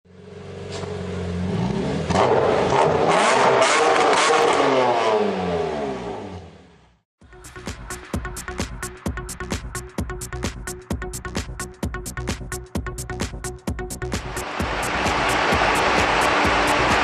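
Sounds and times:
car engine revving hard: 0:01.4 - 0:06.7, 0:14.2 - 0:17.0
exhaust crackles: 0:14.2 - 0:17.0.

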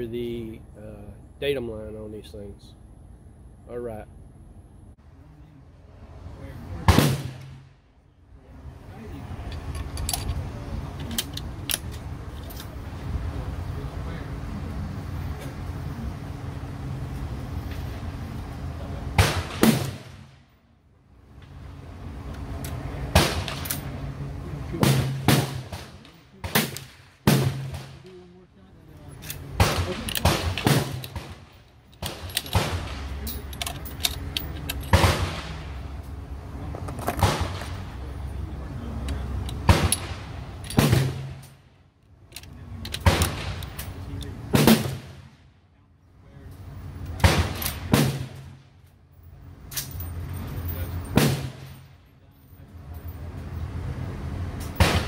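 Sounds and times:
rifle shots: 0:06.9 - 0:07.7, 0:19.2 - 0:20.3, 0:23.1 - 0:23.8, 0:24.8 - 0:28.1, 0:29.6 - 0:33.2, 0:34.9 - 0:35.7, 0:37.2 - 0:37.9, 0:39.6 - 0:41.5, 0:43.0 - 0:43.7, 0:47.2 - 0:48.6, 0:54.8 - 0:55.0.

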